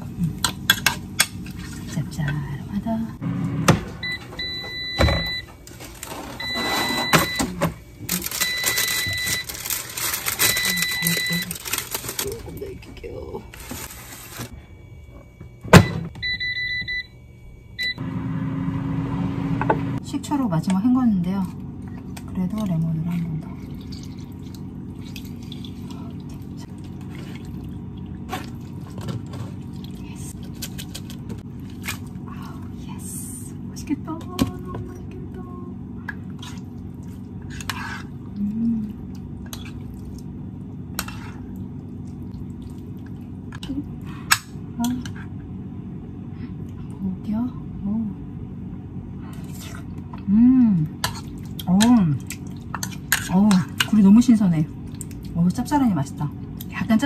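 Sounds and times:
steady low hum: 0.0 - 57.0
parchment paper crinkling: 8.1 - 12.8, 13.5 - 14.5
oysters squishing and dripping: 23.6 - 29.0.

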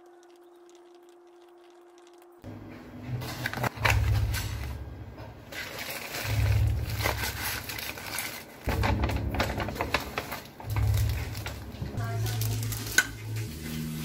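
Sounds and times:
low hum: 6.1 - 13.8.

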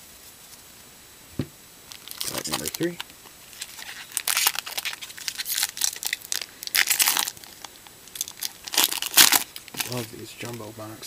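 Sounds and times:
foil wrapper tearing and crinkling: 1.9 - 10.6.

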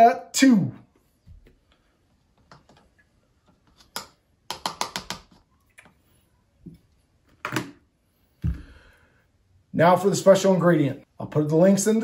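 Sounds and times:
spoon tapping plastic funnel: 3.8 - 5.4.

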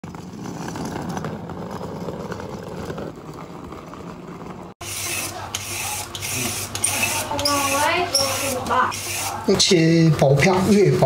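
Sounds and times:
trolley wheels rattling over tiles: 0.0 - 4.8.

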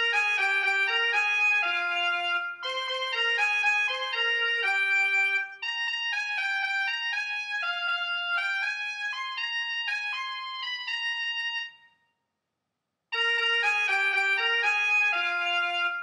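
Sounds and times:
synthesized trumpet melody: 13.2 - 16.0.

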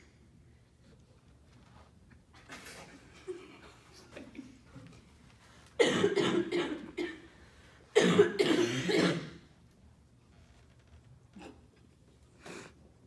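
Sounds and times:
person coughing: 5.8 - 7.3, 8.0 - 9.4.

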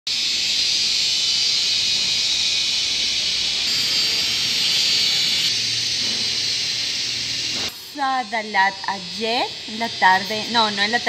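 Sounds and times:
high-pitched hiss: 0.1 - 11.0.

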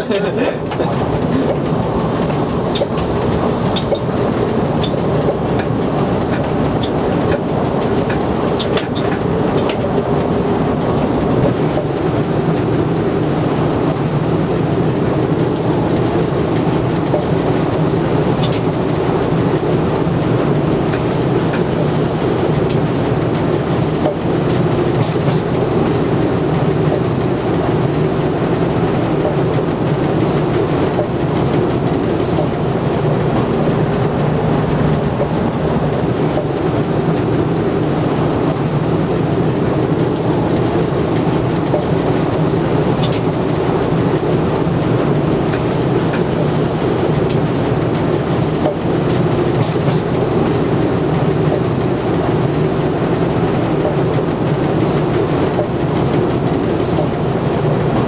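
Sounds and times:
clicks over rail joints: 0.0 - 58.0
low electric hum: 0.0 - 58.0
wheels rumbling on rail: 0.0 - 58.0.

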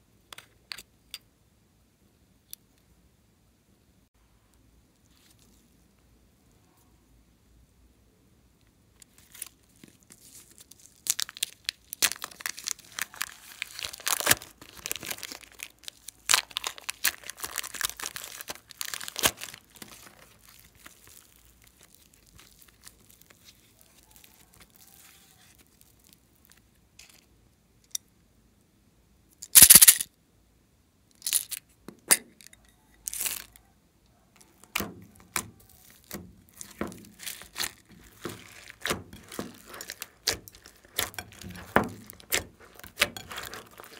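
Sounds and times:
plastic bags crinkling: 9.1 - 26.6, 34.6 - 43.9
sharp ripping: 10.2 - 26.2, 34.7 - 43.9.

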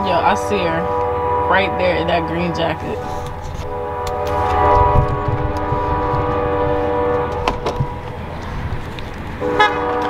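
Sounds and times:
train horn chord: 0.0 - 8.8, 9.4 - 10.0
low rumble: 0.0 - 10.0.

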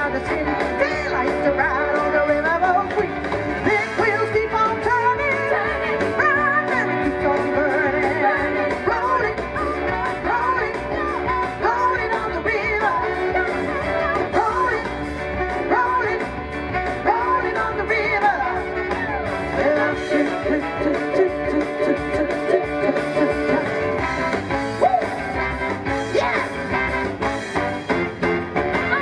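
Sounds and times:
woman singing into microphone: 0.0 - 14.9, 15.6 - 16.3, 17.0 - 23.8
rock and roll backing music: 0.0 - 29.0.

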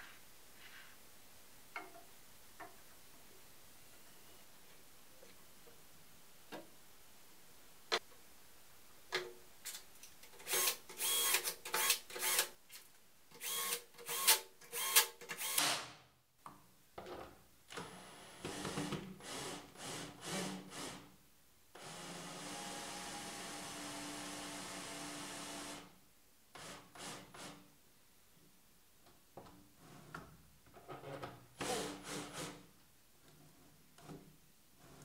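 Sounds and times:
cordless drill whirring: 10.5 - 12.5, 13.4 - 15.7.

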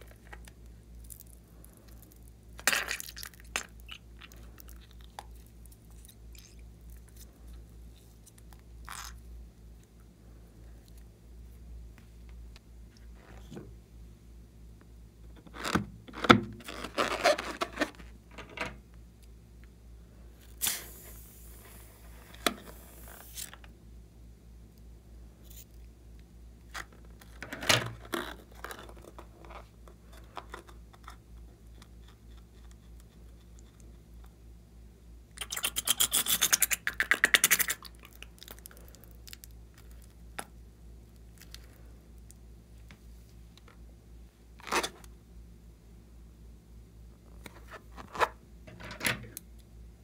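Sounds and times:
rubber balloon rubbing and scraping: 15.5 - 18.1
hiss: 20.6 - 23.4.

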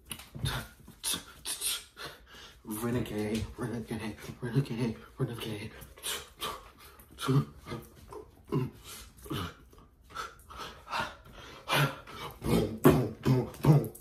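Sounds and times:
person huffing and grunting: 7.2 - 9.7, 10.7 - 14.0.

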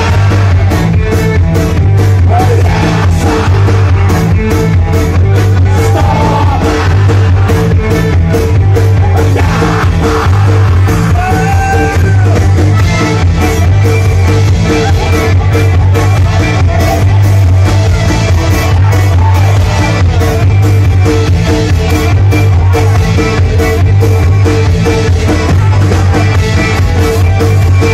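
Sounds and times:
sung or shouted vocals: 0.0 - 0.9, 2.0 - 4.6, 5.2 - 8.2, 9.0 - 13.0
rock band with accordion: 0.0 - 27.9
steady drum beat: 0.0 - 27.9.

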